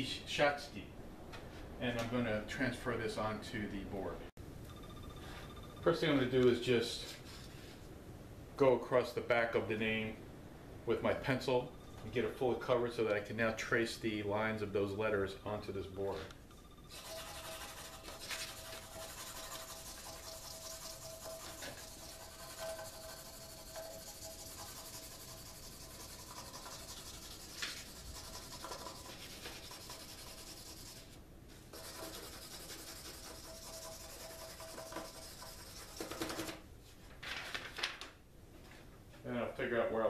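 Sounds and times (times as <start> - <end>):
pencil scribbling on paper: 16.9 - 36.5
paper rustling: 17.9 - 19.6, 35.9 - 38.2.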